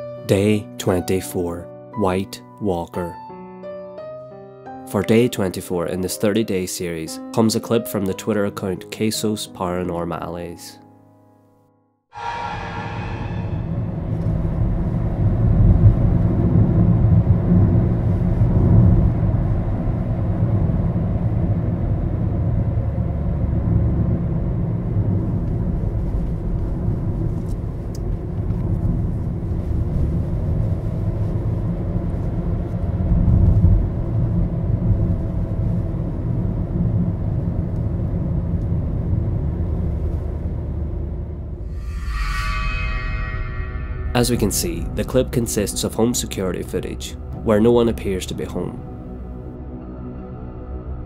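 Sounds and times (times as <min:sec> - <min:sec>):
low rumble with hum: 0:12.3 - 0:45.0.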